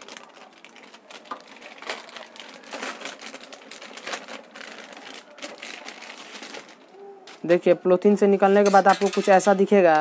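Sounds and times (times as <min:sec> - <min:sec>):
plastic packaging crinkling: 0:00.0 - 0:07.7.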